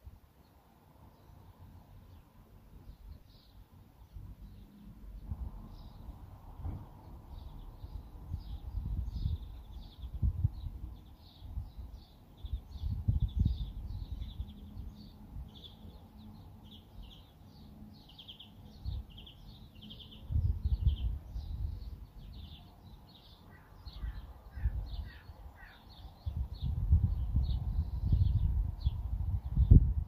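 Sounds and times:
songbirds chirping: 0:00.0 - 0:30.0
wind rumbling on microphone: 0:04.0 - 0:16.0, 0:18.7 - 0:30.0
lower-pitched bird calling: 0:18.2 - 0:26.4.

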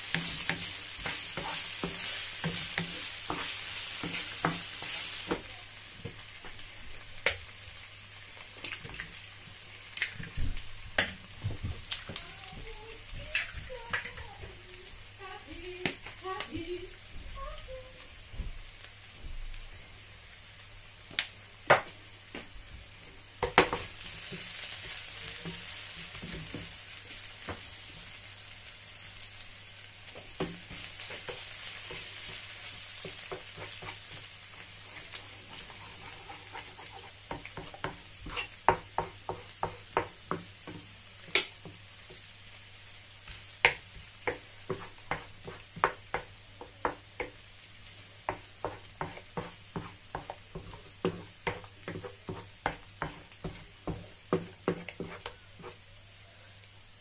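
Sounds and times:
food sizzling in a frying pan: 0:00.0 - 0:57.0
wooden spoon knocking on pan: 0:21.7 - 0:22.5, 0:23.4 - 0:26.7, 0:37.2 - 0:42.2, 0:43.6 - 0:47.4, 0:48.3 - 0:55.8.

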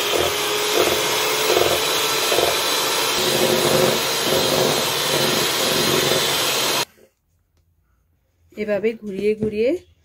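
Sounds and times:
electric hand mixer whisking: 0:00.0 - 0:06.9.

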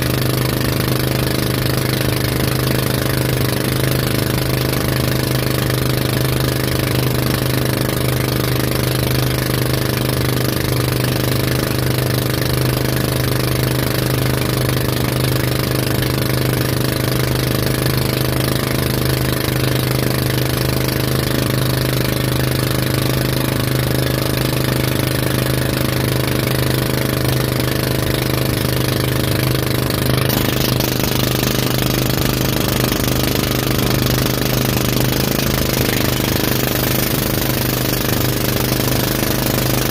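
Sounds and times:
motorboat engine droning: 0:00.0 - 0:39.9
rushing water: 0:27.4 - 0:39.9.

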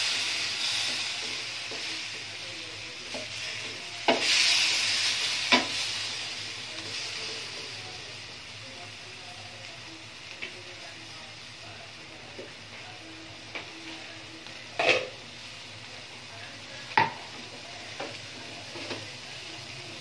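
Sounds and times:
chicken sizzling in a pan: 0:00.0 - 0:20.0
kitchenware clatter: 0:14.8 - 0:15.2
kitchenware knocking on pan: 0:17.0 - 0:17.3.

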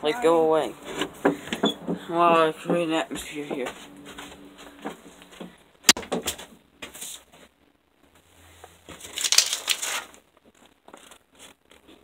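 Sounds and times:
rummaging and handling noises: 0:08.7 - 0:12.0.

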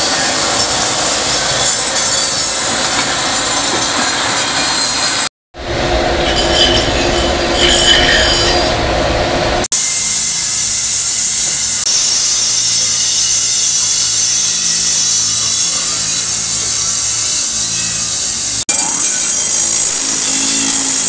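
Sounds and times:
hiss of metal being rubbed: 0:09.8 - 0:18.6.

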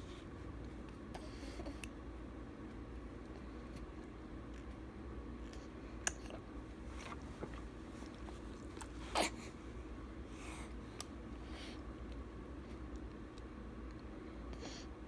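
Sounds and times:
baby sucking and swallowing: 0:05.4 - 0:09.3.

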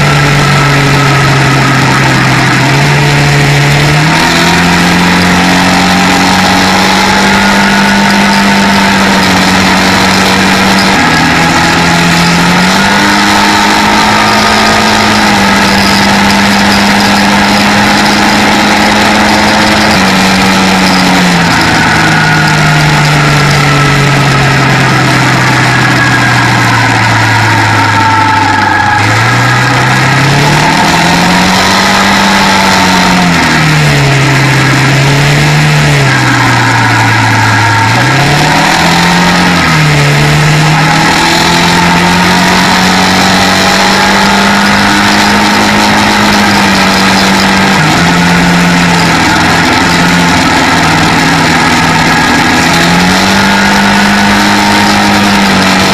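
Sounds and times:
quad bike engine: 0:00.0 - 0:55.9
rushing noise: 0:00.0 - 0:55.9.

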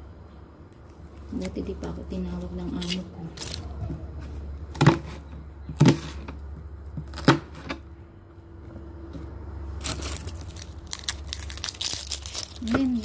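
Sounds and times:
low steady hum: 0:00.0 - 0:13.0
onion skin rustling: 0:00.8 - 0:05.3, 0:09.7 - 0:13.0.

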